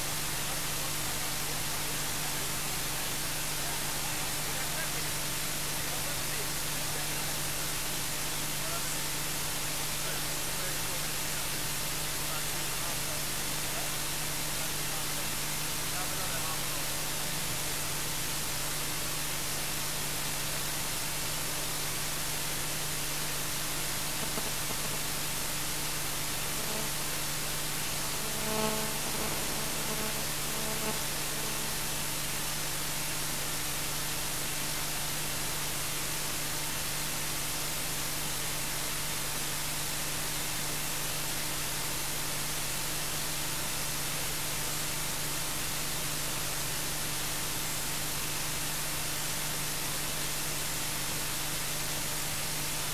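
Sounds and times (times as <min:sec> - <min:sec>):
low electrical hum: 0:14.8 - 0:39.4
steady hiss: 0:21.5 - 0:34.5.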